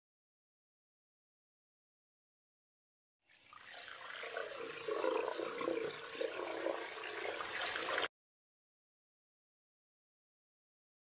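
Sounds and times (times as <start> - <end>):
water spraying into steel sink: 3.4 - 8.1.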